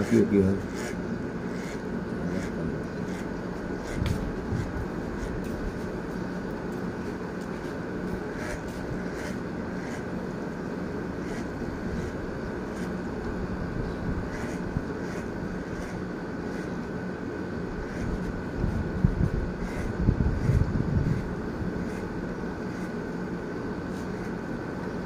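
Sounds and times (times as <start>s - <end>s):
electric hair clipper buzzing: 0.0s - 6.1s, 8.0s - 10.2s, 11.0s - 13.4s, 14.2s - 17.0s, 17.7s - 23.2s.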